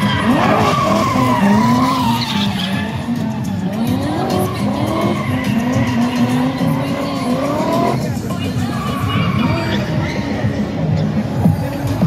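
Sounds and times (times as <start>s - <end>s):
tyres squealing: 0.0s - 8.0s
car engine revving: 0.0s - 11.4s.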